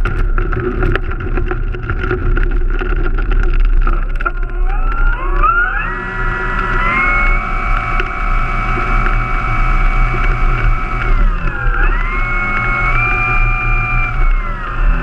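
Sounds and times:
model plane motor whine: 4.3s - 15.0s.

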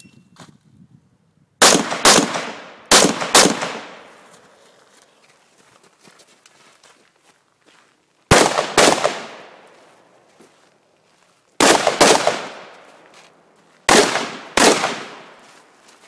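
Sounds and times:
rifle shots with long echo: 1.6s - 4.2s, 8.3s - 9.7s, 11.6s - 12.9s, 13.9s - 15.4s.

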